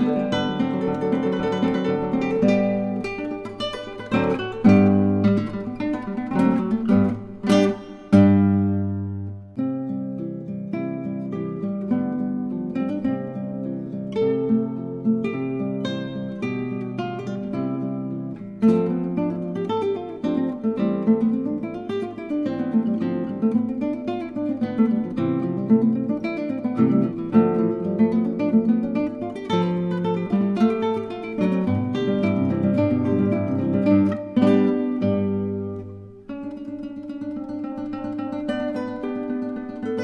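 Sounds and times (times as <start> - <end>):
acoustic guitar chords strummed: 0.0 - 10.4
acoustic guitar plucked notes: 0.0 - 40.0.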